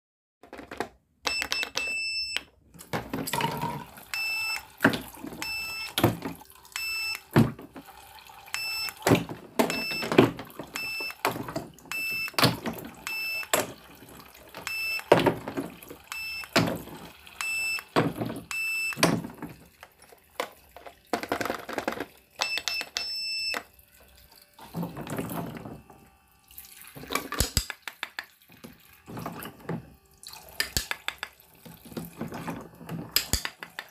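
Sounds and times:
plastic clicks and knocks: 0.4s - 1.9s, 18.0s - 23.6s, 27.0s - 28.4s, 30.6s - 33.9s
toy cash register beeping: 1.2s - 23.8s, 29.0s - 31.4s, 32.4s - 33.9s.

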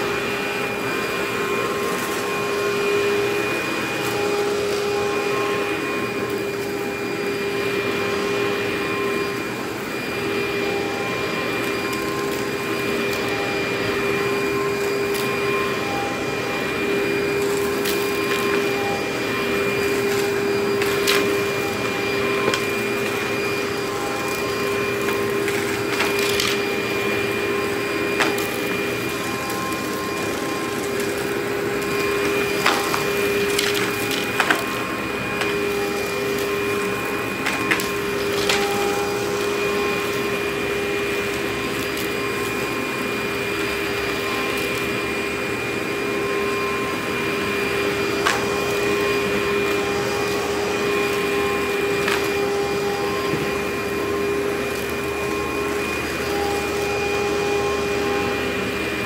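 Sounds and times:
vacuum cleaner humming: 0.0s - 59.0s.

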